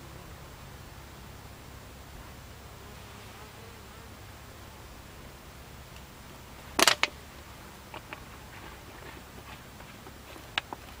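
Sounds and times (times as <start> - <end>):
honeybees humming: 0.0 - 11.0
faint ticks: 9.8 - 11.0.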